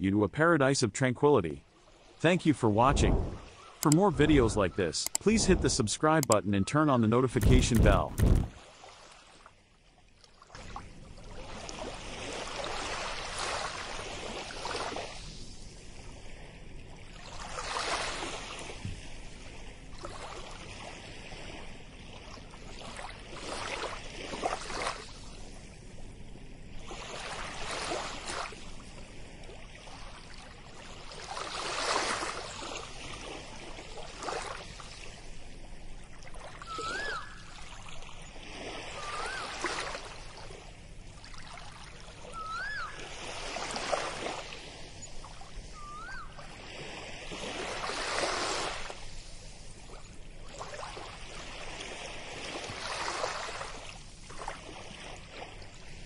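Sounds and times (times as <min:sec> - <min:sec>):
ocean waves on a beach: 0:00.0 - 0:56.0
short whistled call: 0:36.6 - 0:37.6, 0:39.0 - 0:39.6, 0:42.3 - 0:43.0, 0:45.7 - 0:46.4.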